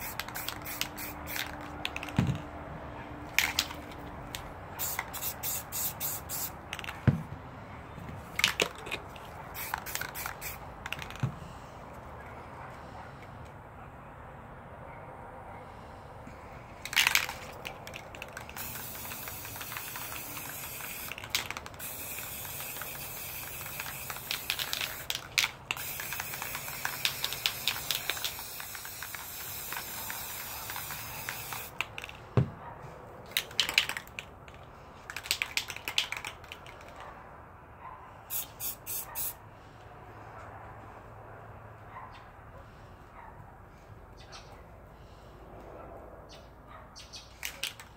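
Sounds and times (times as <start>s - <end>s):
spray paint can hissing: 0.0s - 2.2s, 3.4s - 7.0s, 8.4s - 11.2s, 16.8s - 32.1s, 38.3s - 39.4s.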